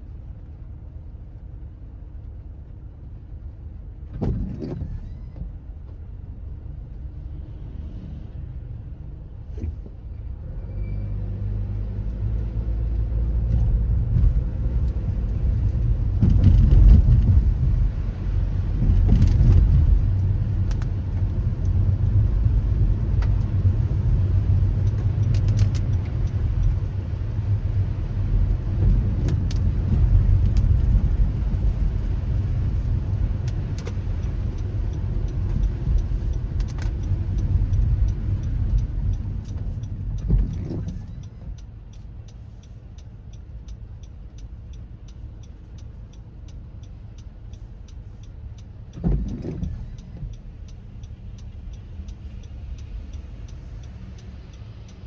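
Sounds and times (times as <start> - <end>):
car engine and tyre noise: 0.0 - 55.0
sharp ticks: 33.4 - 55.0.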